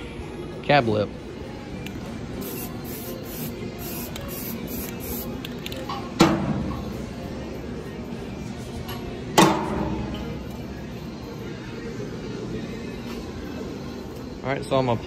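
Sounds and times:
spray paint hissing: 0:02.4 - 0:05.5.

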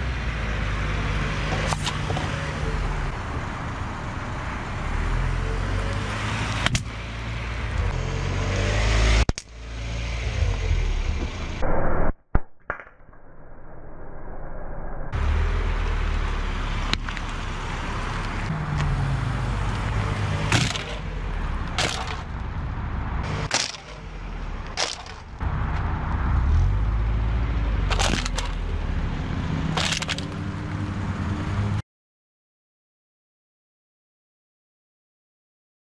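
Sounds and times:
car engine low rumble: 0:00.0 - 0:11.6, 0:15.1 - 0:31.8
tyres rolling on asphalt: 0:00.0 - 0:11.6, 0:15.2 - 0:31.8
objects cracking under wheels: 0:19.8 - 0:21.0, 0:21.6 - 0:22.5, 0:23.4 - 0:25.4, 0:27.9 - 0:28.6, 0:29.7 - 0:30.4.

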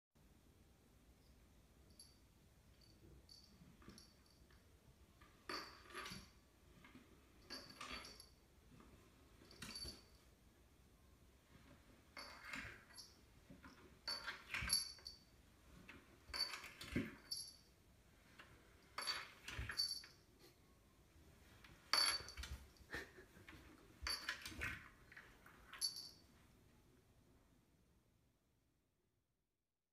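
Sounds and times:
metallic jingle: 0:07.4 - 0:08.4, 0:14.0 - 0:15.3, 0:16.3 - 0:17.7, 0:18.9 - 0:20.2, 0:21.8 - 0:22.9, 0:24.0 - 0:26.3.

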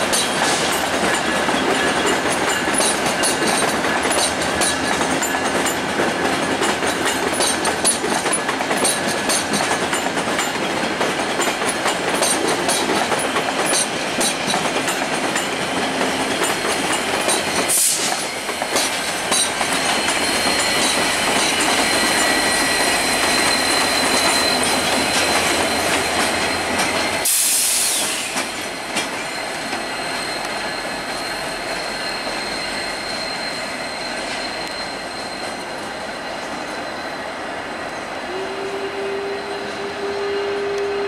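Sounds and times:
train wheels clattering: 0:00.0 - 0:36.8
wheel flanges squealing: 0:11.4 - 0:41.0.

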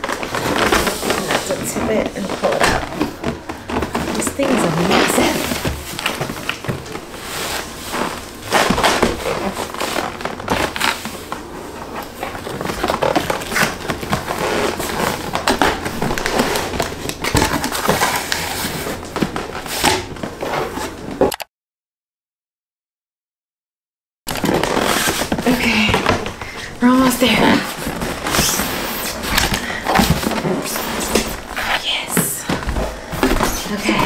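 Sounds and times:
cardboard scraping and rustling: 0:00.0 - 0:21.3, 0:24.3 - 0:34.0.

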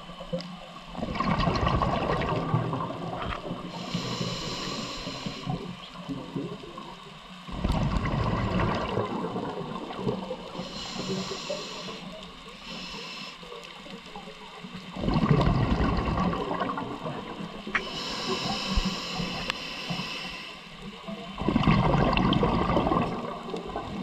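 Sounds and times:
diver exhaling gurgling bubbles: 0:00.9 - 0:06.9, 0:07.5 - 0:12.1, 0:14.8 - 0:20.4, 0:21.2 - 0:24.0
regulator inhalation hiss: 0:03.6 - 0:05.9, 0:10.4 - 0:13.8, 0:17.6 - 0:21.0.

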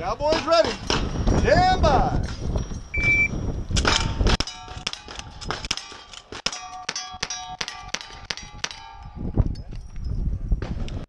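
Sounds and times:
shot timer beep: 0:03.0 - 0:03.3
steel targets ringing: 0:05.8 - 0:09.2.

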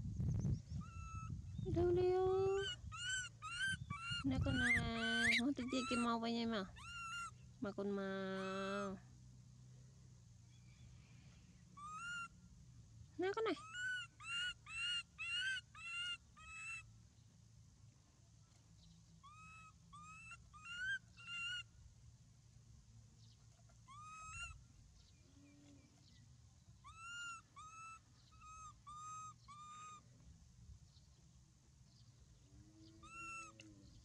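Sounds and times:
high-pitched animal calls: 0:00.8 - 0:01.4, 0:02.4 - 0:09.0, 0:11.8 - 0:12.4, 0:13.2 - 0:16.9, 0:19.2 - 0:21.7, 0:23.6 - 0:24.6, 0:26.8 - 0:30.1, 0:32.6 - 0:34.0.

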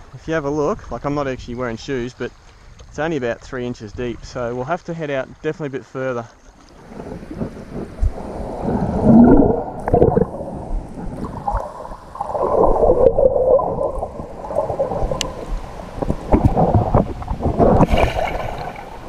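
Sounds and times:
muffled underwater water rushing: 0:06.4 - 0:19.0.

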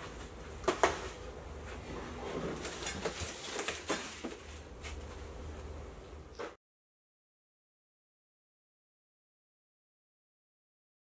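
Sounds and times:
cardboard rustling and scraping: 0:01.8 - 0:05.2.

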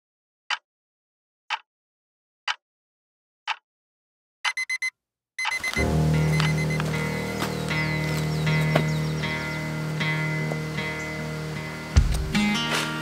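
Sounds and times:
clock ticking: 0:04.4 - 0:06.9
electronic beeps: 0:04.5 - 0:06.8
music with low note: 0:05.7 - 0:13.0.

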